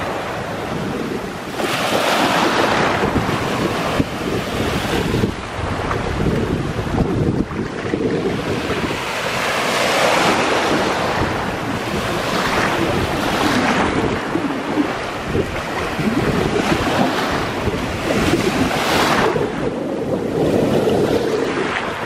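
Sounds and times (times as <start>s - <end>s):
small waves breaking: 0.0s - 22.0s
wind buffeting the microphone: 0.0s - 22.0s.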